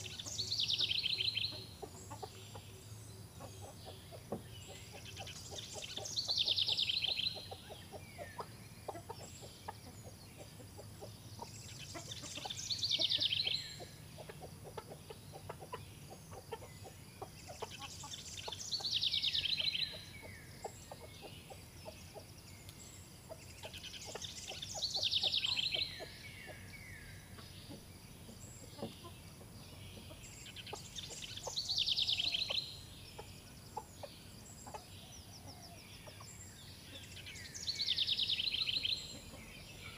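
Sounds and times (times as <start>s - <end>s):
hens clucking softly: 0.0s - 22.3s, 27.3s - 32.6s, 33.2s - 36.3s, 39.0s - 39.8s.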